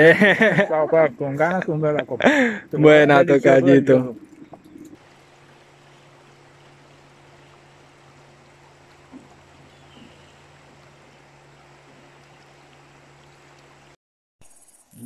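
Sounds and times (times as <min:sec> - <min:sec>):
river water rushing: 0:02.2 - 0:13.9.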